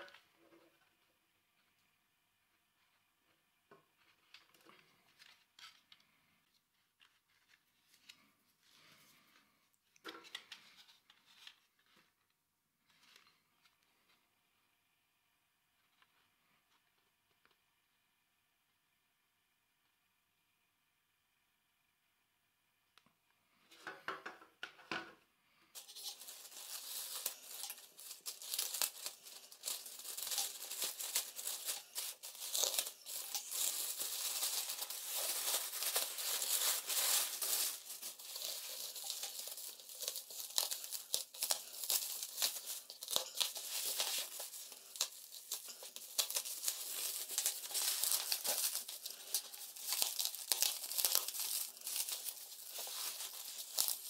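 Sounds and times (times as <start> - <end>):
bubble wrap crinkling and crackling: 25.8 - 54.0.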